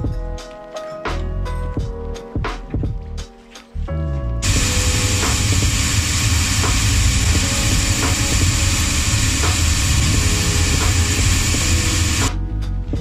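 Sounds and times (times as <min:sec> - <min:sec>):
sanding wheel sanding insole: 0:04.4 - 0:12.3.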